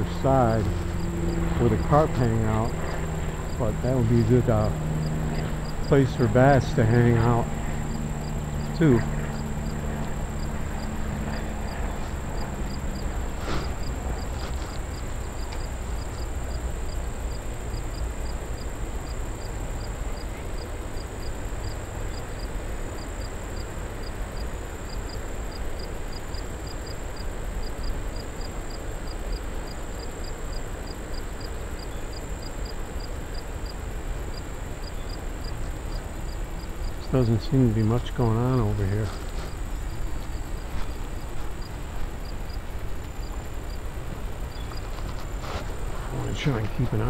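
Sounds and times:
low rushing noise: 0:00.0 - 0:18.2
insect chirping: 0:00.0 - 0:47.0.

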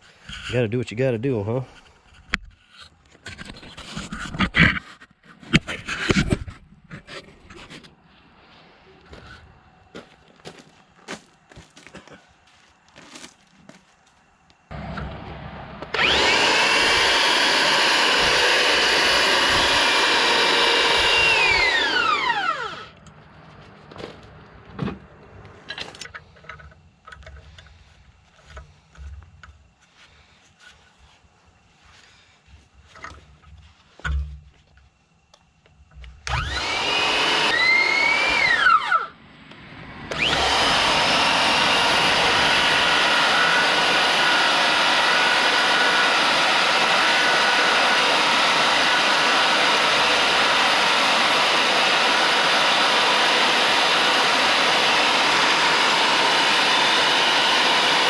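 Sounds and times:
power drive motor whine: 0:14.7 - 0:23.2, 0:35.8 - 0:58.0.

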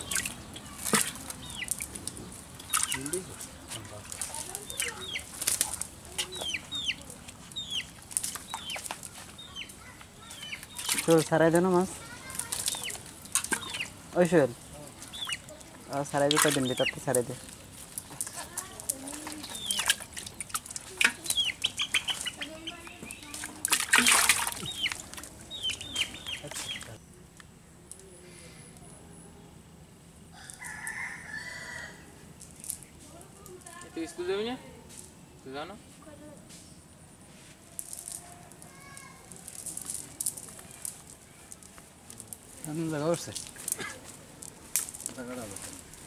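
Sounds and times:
bird chirping: 0:00.0 - 0:05.4, 0:06.0 - 0:18.2, 0:19.2 - 0:23.4, 0:24.4 - 0:27.2
fish flapping and slapping: 0:00.0 - 0:09.4, 0:10.6 - 0:11.3, 0:12.1 - 0:14.0, 0:16.2 - 0:26.7
chickens clucking and peeping: 0:00.0 - 0:27.0.

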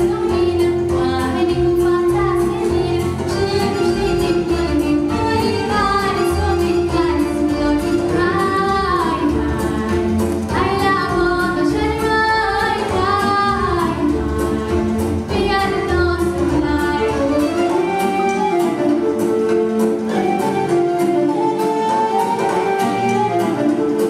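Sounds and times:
girl singing: 0:00.0 - 0:14.6, 0:15.3 - 0:17.4
instrumental accompaniment: 0:00.0 - 0:24.0.

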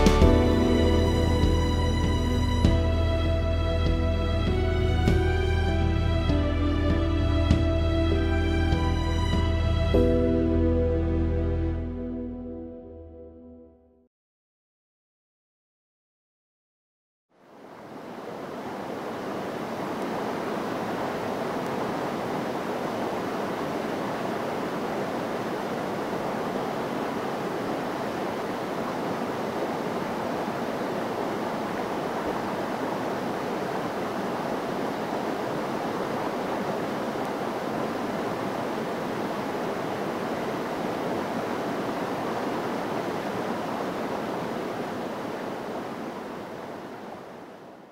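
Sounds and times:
river water rushing over rapids: 0:17.4 - 0:47.9.

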